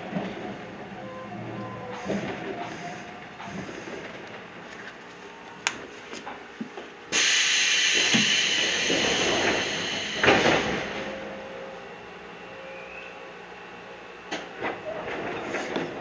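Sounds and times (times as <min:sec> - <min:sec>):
train compressed air hissing: 0:07.1 - 0:11.0.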